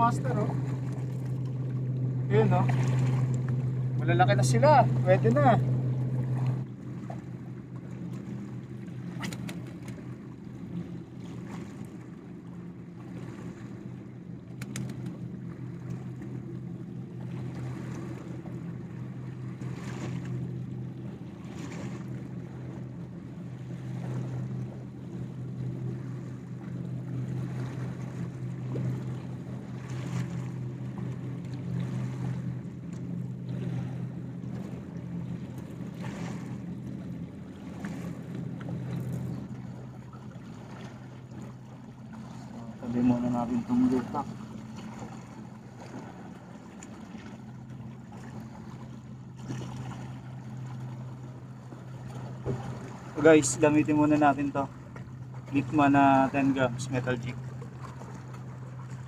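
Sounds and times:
motor droning: 0.0 - 59.0
sea water washing against rocks: 14.5 - 16.1.

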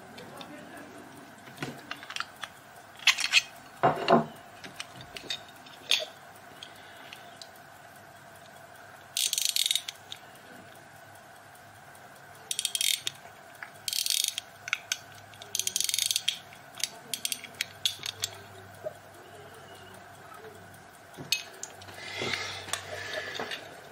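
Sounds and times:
pocket watch winding clicks: 0.2 - 3.8, 4.6 - 23.9.

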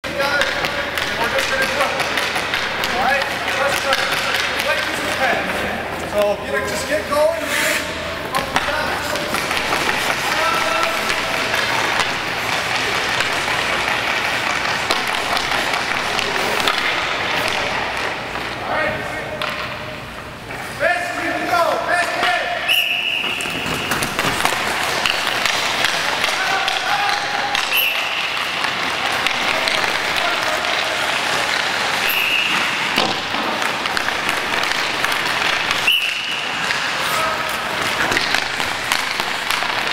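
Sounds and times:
hockey stick tapping puck: 0.1 - 7.0, 8.2 - 18.6, 19.4 - 19.9, 22.0 - 39.9
skates scraping ice: 0.1 - 19.7, 20.4 - 39.9
high squeaks: 27.7 - 28.3, 31.9 - 32.8.

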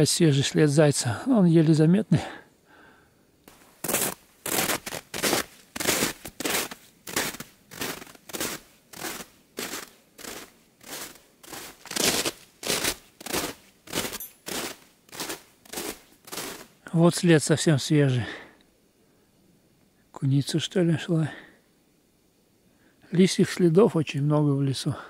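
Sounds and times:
footsteps crunching on snow: 3.5 - 16.8.

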